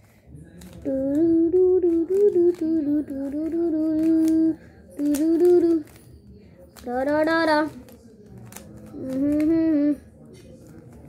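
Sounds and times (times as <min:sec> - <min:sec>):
child humming: 0:00.9 - 0:05.9, 0:09.0 - 0:10.0.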